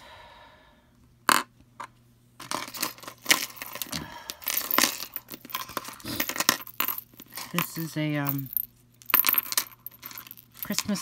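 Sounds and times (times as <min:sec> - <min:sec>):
metal jewelry clinking: 0:02.4 - 0:11.0.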